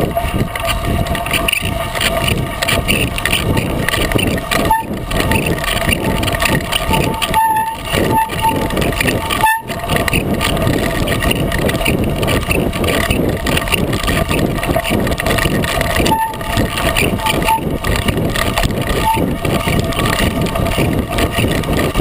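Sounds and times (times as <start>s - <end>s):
tire crunching on gravel: 0.0s - 22.0s
short squeaks: 0.2s - 10.3s, 15.9s - 17.8s, 18.9s - 20.2s.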